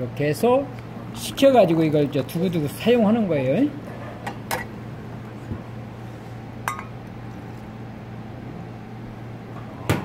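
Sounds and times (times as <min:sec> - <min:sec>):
kitchenware clinking glass bowl: 0:06.7 - 0:07.0.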